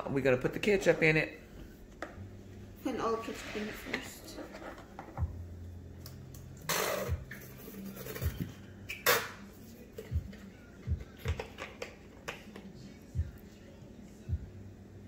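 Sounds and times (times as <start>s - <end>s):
low hum: 5.2s - 7.3s.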